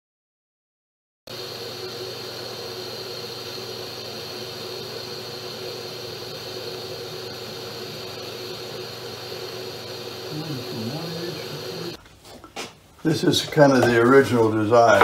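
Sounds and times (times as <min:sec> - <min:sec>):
metal lathe whining hum: 0:01.3 - 0:12.0.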